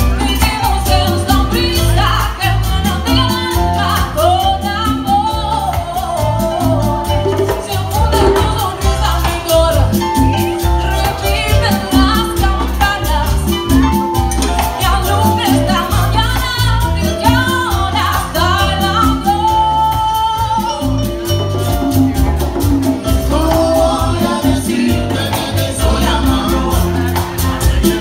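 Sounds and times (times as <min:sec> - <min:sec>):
live latin dance band: 0:00.0 - 0:28.0
lead singer: 0:23.0 - 0:28.0.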